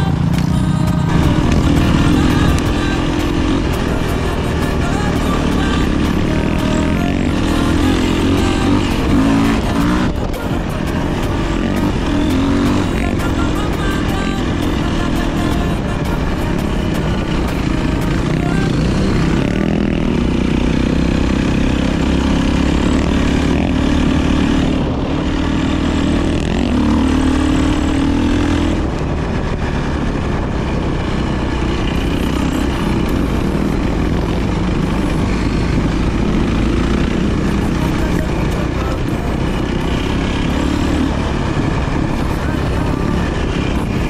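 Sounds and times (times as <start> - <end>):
dirt bike engine revving: 0.0 - 44.0.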